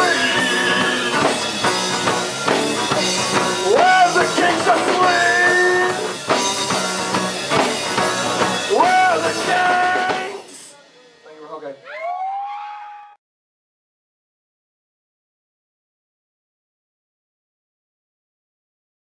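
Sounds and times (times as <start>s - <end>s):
live rock band playing: 0.0s - 11.0s.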